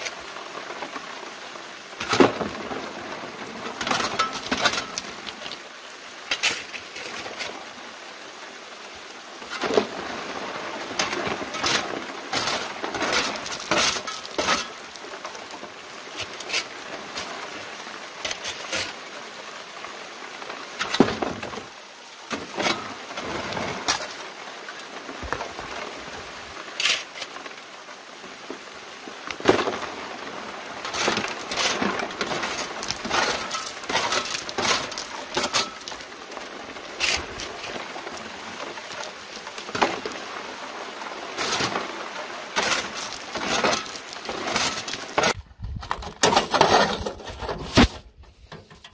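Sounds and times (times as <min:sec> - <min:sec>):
water running down sluice: 0:00.0 - 0:45.4
gravel clattering on metal screen: 0:02.0 - 0:07.6, 0:09.4 - 0:19.0, 0:20.8 - 0:21.7, 0:22.3 - 0:24.2, 0:30.8 - 0:40.4, 0:41.3 - 0:48.9.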